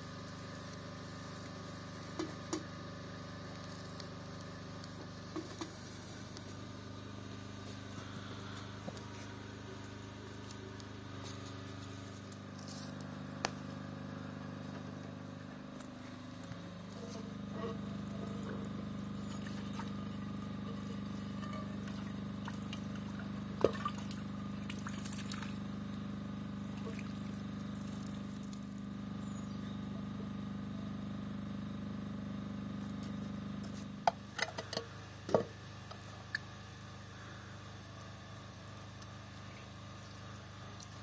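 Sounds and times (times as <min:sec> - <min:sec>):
water pouring: 0:19.2 - 0:25.7, 0:26.6 - 0:28.7.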